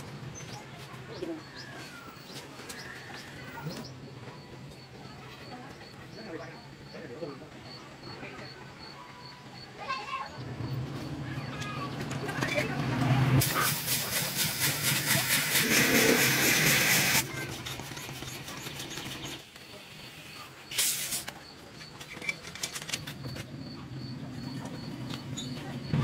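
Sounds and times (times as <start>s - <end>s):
hand pump air hissing: 13.4s - 19.5s, 20.7s - 21.4s.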